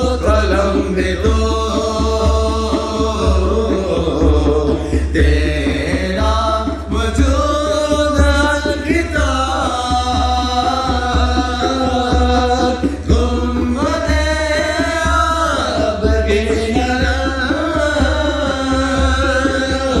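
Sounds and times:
person singing: 15.8 - 20.0.

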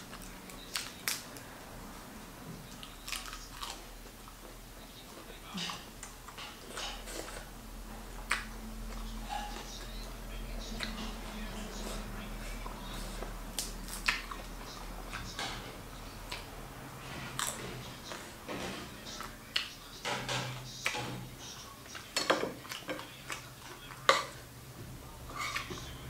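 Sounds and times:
chewing with mouth clicks: 0.0 - 1.5, 2.6 - 16.5, 17.3 - 18.3, 20.9 - 24.5.

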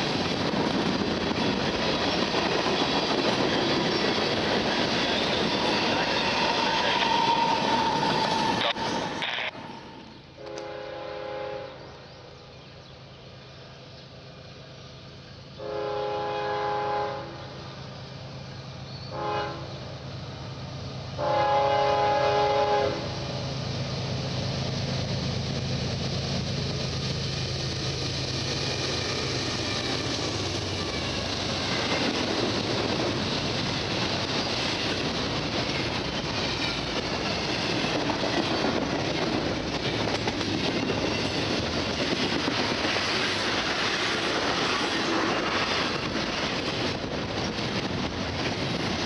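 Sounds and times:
freight train rumbling on rails: 0.0 - 49.0
locomotive air horn blasts: 10.4 - 11.8, 15.6 - 17.4, 19.1 - 19.7, 21.2 - 23.0.

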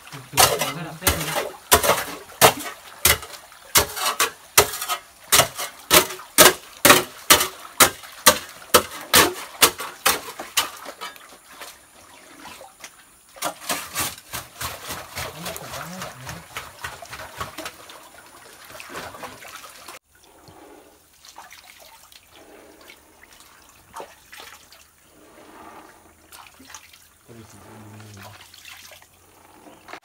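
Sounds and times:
gold pan sloshing in muddy water: 13.4 - 20.0.

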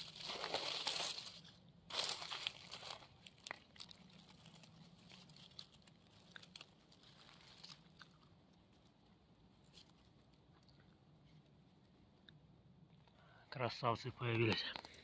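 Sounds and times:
rustling of dry grass and leaves: 0.0 - 12.2.

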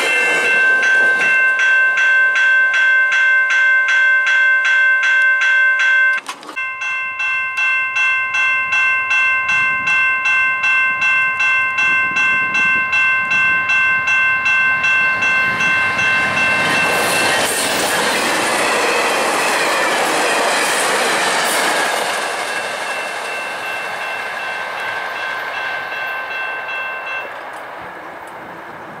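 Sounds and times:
train wheels rushing on rails: 0.0 - 2.1, 10.6 - 29.0
level crossing bell ringing: 0.0 - 21.4, 22.0 - 27.4.

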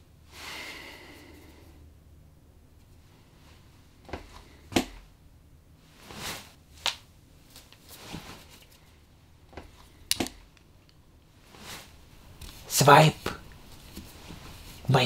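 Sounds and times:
soft swishing: 5.8 - 6.6, 11.4 - 12.7.

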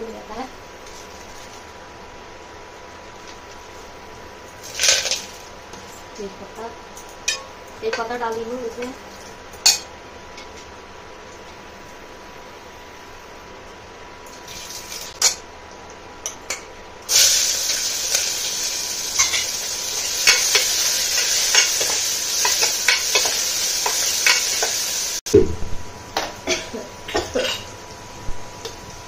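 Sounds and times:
vegetables sizzling in hot oil: 14.3 - 15.3, 17.1 - 25.2
metal spoon stirring a pan: 19.2 - 24.8.

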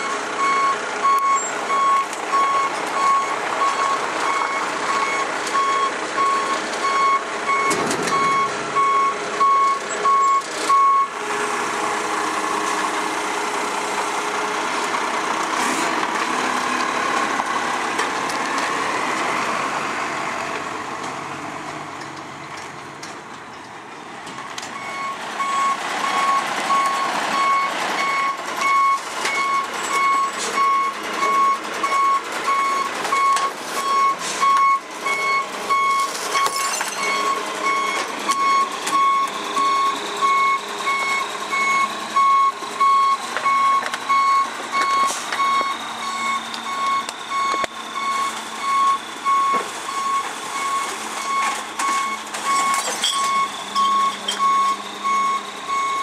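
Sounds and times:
truck warning beeper: 0.0 - 11.2, 24.8 - 56.0
truck engine running: 0.0 - 56.0
knocks and clatters: 7.7 - 8.6.

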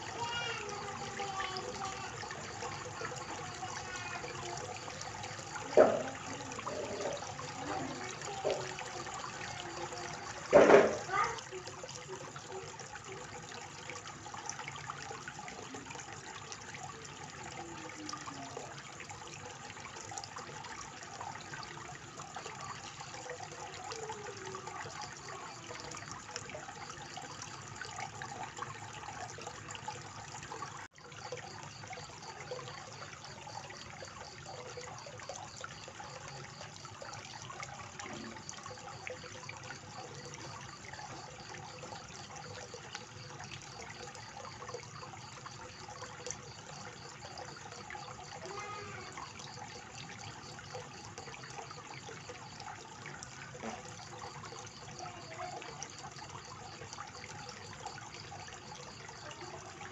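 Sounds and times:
water splashing into pond: 0.0 - 59.9.

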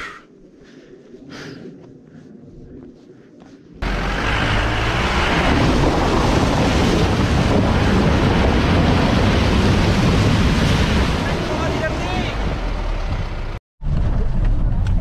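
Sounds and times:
steady low rumble: 0.0 - 15.0
water splashing and rushing: 3.8 - 13.3.

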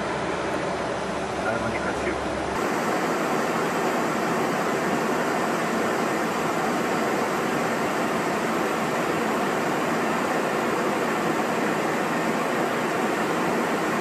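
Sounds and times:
rushing air hiss in cockpit: 0.0 - 14.0.

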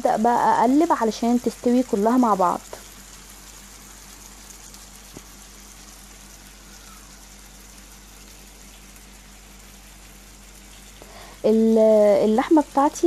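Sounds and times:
beef sizzling in hot oil: 0.0 - 13.0.

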